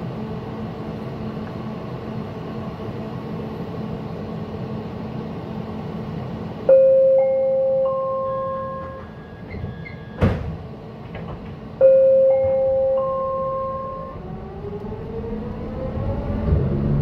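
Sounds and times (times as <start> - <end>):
low rail rumble: 0.0 - 17.0
train clunk: 8.1 - 14.1
electric train motor whine: 11.8 - 17.0.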